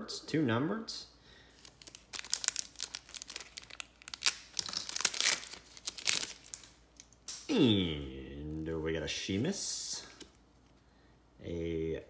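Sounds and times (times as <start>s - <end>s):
foil wrapper crinkling: 1.5s - 6.8s.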